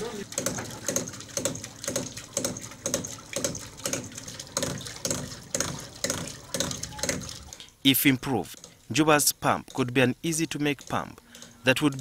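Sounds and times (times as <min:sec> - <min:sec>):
water pump valve clacking: 0:00.0 - 0:07.7, 0:08.3 - 0:09.0, 0:10.5 - 0:12.0
water spurting and splashing: 0:00.0 - 0:09.0.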